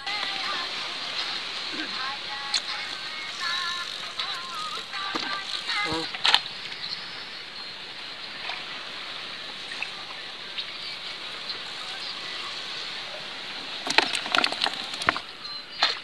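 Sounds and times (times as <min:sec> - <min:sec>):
trickling water: 0:00.0 - 0:16.0
faint water drips: 0:00.1 - 0:07.0.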